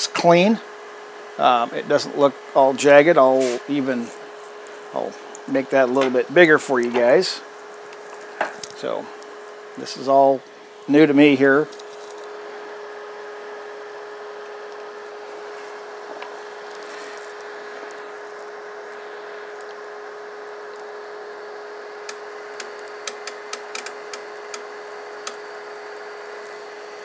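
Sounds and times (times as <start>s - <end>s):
electric motor humming with whine: 0.0s - 27.0s
sharp clicks: 22.1s - 24.6s.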